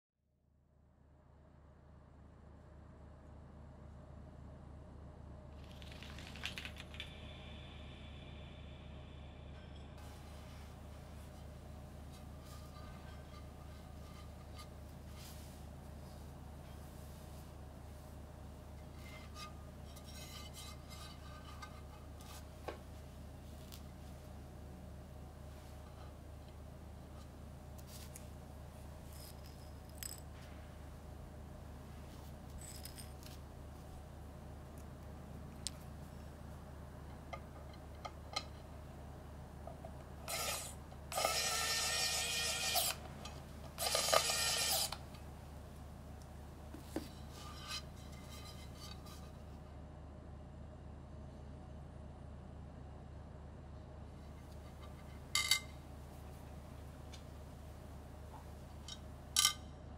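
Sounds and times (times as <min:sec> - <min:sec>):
steady low hum: 0:00.5 - 0:59.9
metal scraping and clinking: 0:09.6 - 0:15.6, 0:18.8 - 0:22.5, 0:29.0 - 0:30.5, 0:32.5 - 0:33.5, 0:39.7 - 0:45.2, 0:46.9 - 0:49.4, 0:54.4 - 0:55.7.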